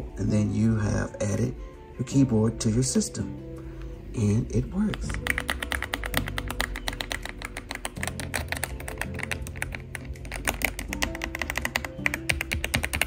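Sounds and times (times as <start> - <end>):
background music: 0.0 - 13.0
mechanical keyboard typing: 4.8 - 13.0.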